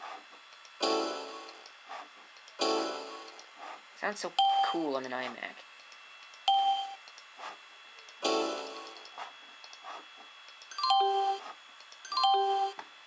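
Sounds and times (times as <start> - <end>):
two-note doorbell-like chime: 10.8 - 11.4, 12.1 - 12.8.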